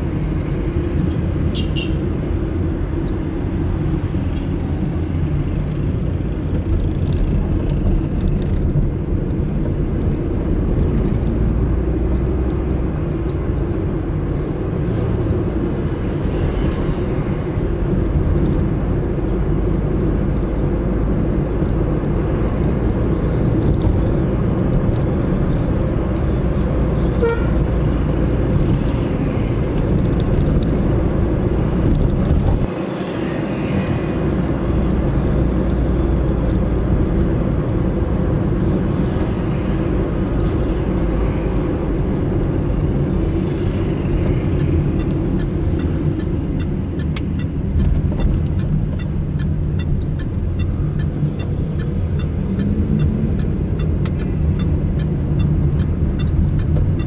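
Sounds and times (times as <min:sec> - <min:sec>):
car engine and road rumble: 0:00.0 - 0:57.0
car horn toot: 0:01.5 - 0:02.0, 0:27.2 - 0:27.6.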